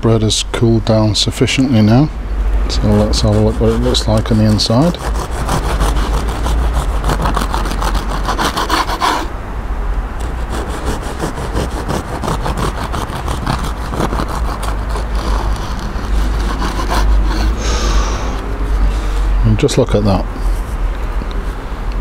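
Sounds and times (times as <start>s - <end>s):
bread knife sawing crusty loaf: 2.7s - 9.3s, 10.2s - 17.6s.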